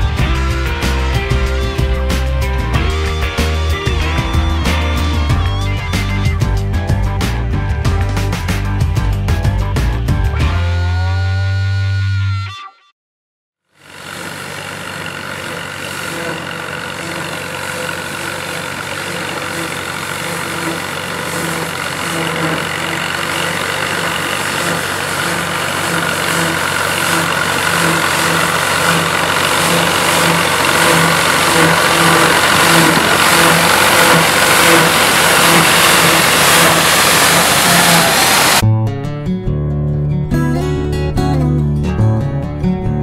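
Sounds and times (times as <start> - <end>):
tractor engine throbbing: 0.0 - 11.4, 13.7 - 38.7
threshing machinery rattling hiss: 13.8 - 38.6.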